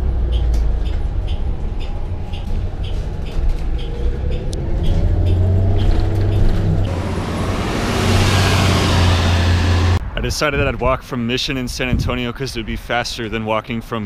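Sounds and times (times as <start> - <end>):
bus engine and road rumble: 0.0 - 14.0
street traffic noise: 0.0 - 14.0
light regular ticking: 0.2 - 6.9.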